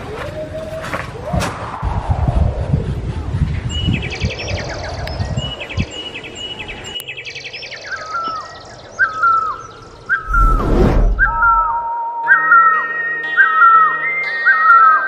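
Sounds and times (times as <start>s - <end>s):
small birds chirping trills: 2.6s - 10.5s
falling whistled phrase: 10.1s - 12.7s.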